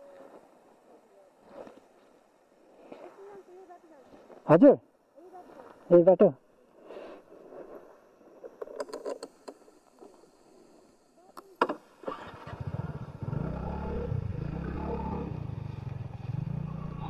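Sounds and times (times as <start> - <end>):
scooter engine starting and running: 12.0 - 17.0.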